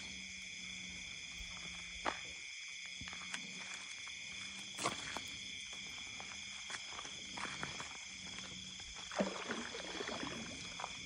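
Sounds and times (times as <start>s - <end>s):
night insects chorus: 0.0s - 11.0s.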